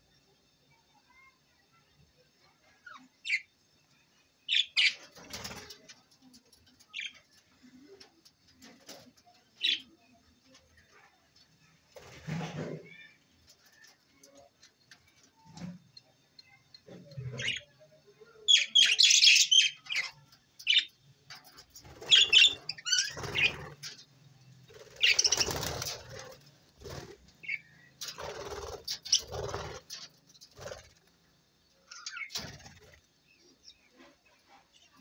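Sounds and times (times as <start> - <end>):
wings flapping: 5.0 - 5.9, 21.5 - 24.0, 24.6 - 31.1.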